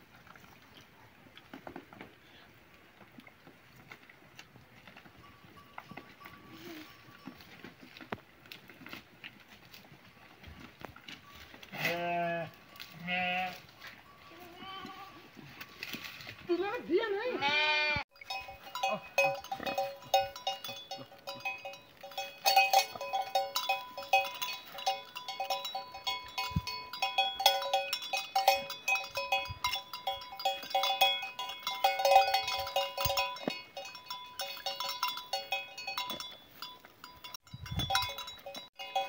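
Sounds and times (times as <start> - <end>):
sheep bells jangling: 4.8 - 8.1, 11.0 - 14.6, 18.1 - 39.0.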